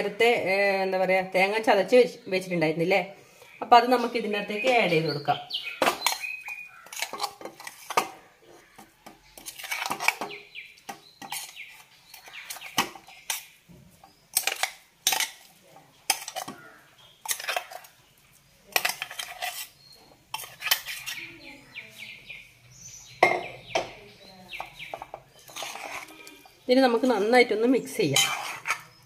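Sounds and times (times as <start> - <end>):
metal spoon clinking on cookware: 5.7 - 8.2, 8.8 - 17.9, 18.7 - 21.3, 24.5 - 27.4, 28.0 - 29.0.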